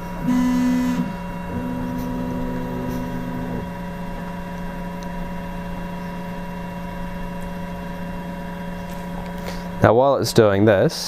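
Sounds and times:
stepper motors whining: 0.0 - 4.1
steady machine hum: 0.0 - 11.0.

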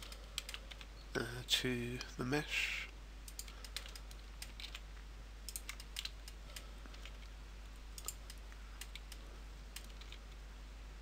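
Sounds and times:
steady low hum: 0.0 - 11.0
mouse and keyboard clicks: 3.3 - 4.8, 5.5 - 7.3, 8.0 - 10.4.

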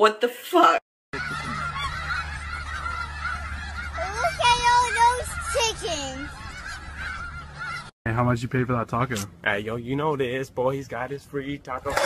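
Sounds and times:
geese honking: 1.2 - 7.9, 11.8 - 12.0.

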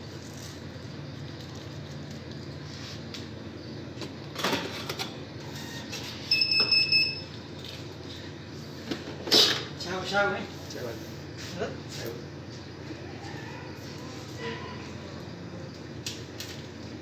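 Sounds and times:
steady low hum: 0.0 - 17.0
high electronic beep: 5.6 - 7.3.

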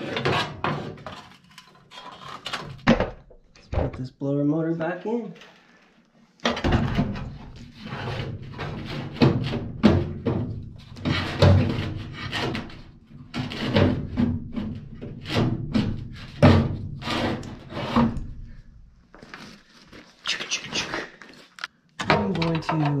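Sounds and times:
metal knocks and scrapes: 0.0 - 3.2, 6.5 - 18.4.

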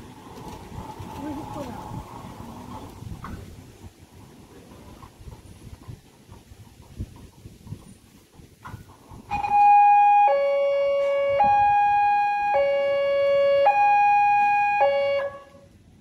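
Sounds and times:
level-crossing two-tone alarm: 9.3 - 15.5.

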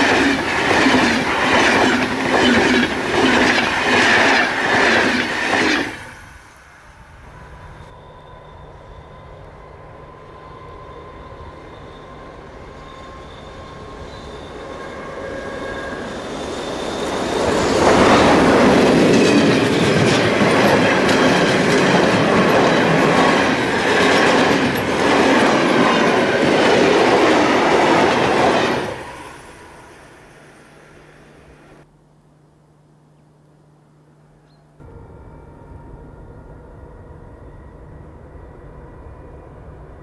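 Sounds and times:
faint ringing rails: 0.0 - 31.8
freight train passing: 0.0 - 31.9, 34.8 - 40.0.

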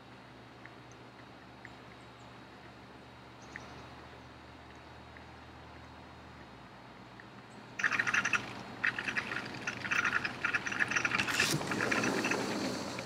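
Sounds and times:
sliding door rattling: 10.7 - 13.0.

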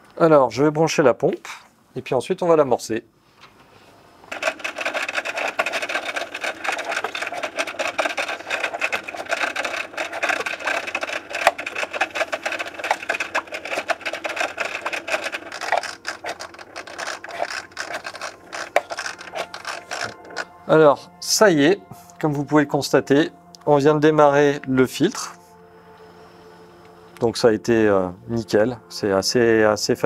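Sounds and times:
filter pump rattling crackle: 4.3 - 20.6.

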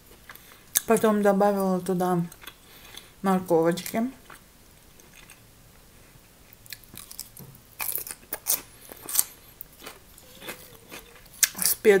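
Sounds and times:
person chewing cucumber crunching: 2.3 - 3.1, 6.6 - 11.8.

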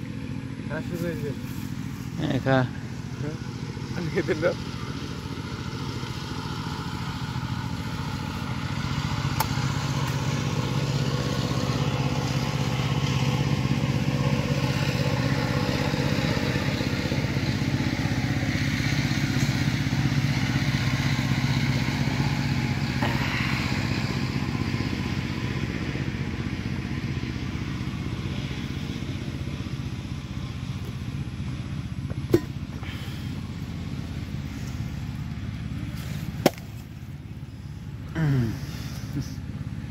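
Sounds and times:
engine running: 0.0 - 39.9.

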